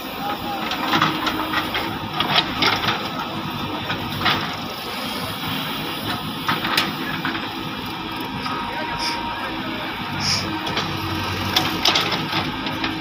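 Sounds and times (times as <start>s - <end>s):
diesel engines under load: 0.0s - 13.0s.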